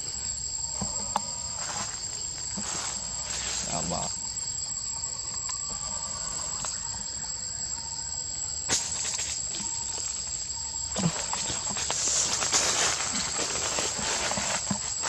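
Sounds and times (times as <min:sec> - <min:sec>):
forest insects droning: 0:00.0 - 0:15.0
rustling in branches and leaves: 0:01.4 - 0:04.0, 0:08.7 - 0:15.0.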